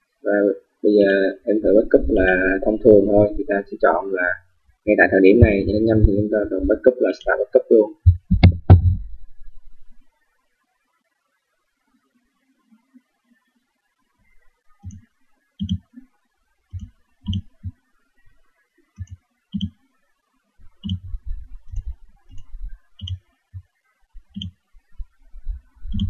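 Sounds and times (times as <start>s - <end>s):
mouse button clicking: 15.6s - 15.8s, 16.8s - 17.7s, 19.0s - 19.8s, 20.8s - 21.1s, 21.7s - 23.2s, 24.3s - 24.6s.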